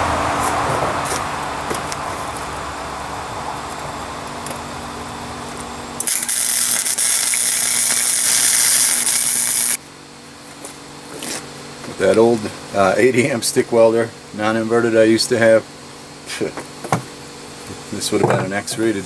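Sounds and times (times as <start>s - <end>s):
welder hum: 1.3s - 9.9s
welding arc crackling and sizzling: 5.5s - 9.8s.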